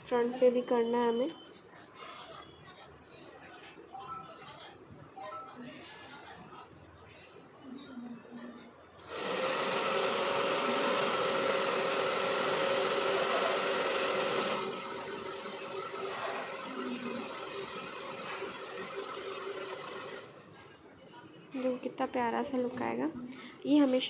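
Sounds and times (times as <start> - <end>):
hair dryer whirring: 9.0 - 20.3.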